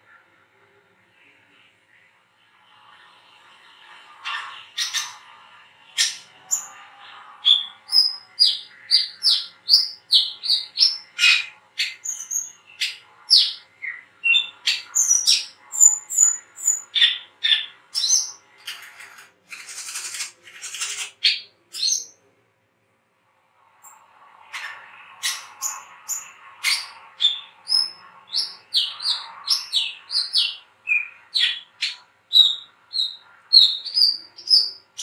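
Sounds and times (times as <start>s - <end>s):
sunbird chirping: 25.2s - 35.0s.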